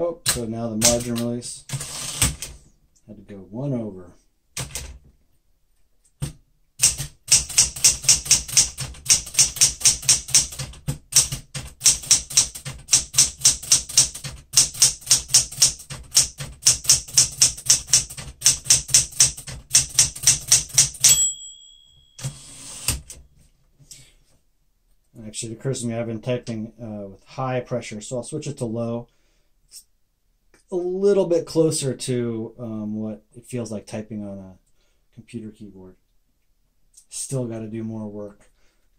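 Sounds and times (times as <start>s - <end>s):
typewriter carriage return: 0.2s - 2.6s, 6.8s - 21.3s, 22.2s - 23.2s
typewriter typing: 0.2s - 2.6s, 4.6s - 5.0s, 6.2s - 21.2s, 22.2s - 23.2s
typewriter margin bell: 11.8s - 23.2s.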